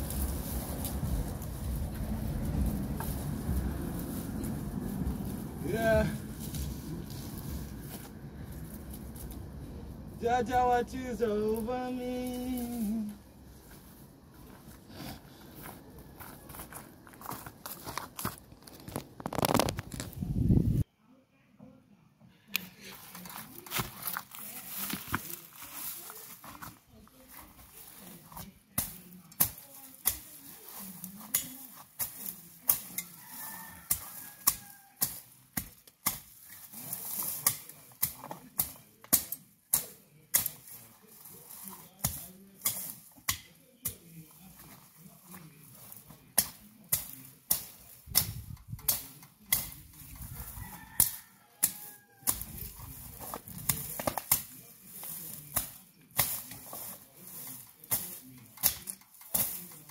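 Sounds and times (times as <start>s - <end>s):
machete chopping dry grass: 0.0s - 9.4s, 23.0s - 26.7s, 27.7s - 59.9s.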